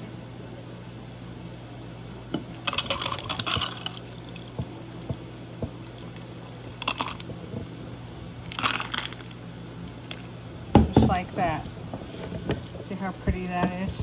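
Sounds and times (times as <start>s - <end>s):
ice crackling and clinking: 2.6s - 4.7s, 5.8s - 9.3s.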